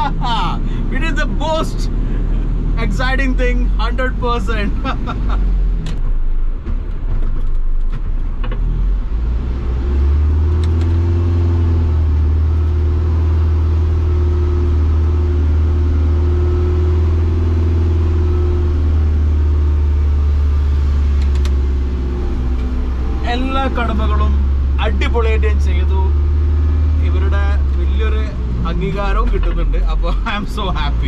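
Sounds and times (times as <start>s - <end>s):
diesel engine droning: 0.0s - 31.0s
steady whine: 12.2s - 30.9s.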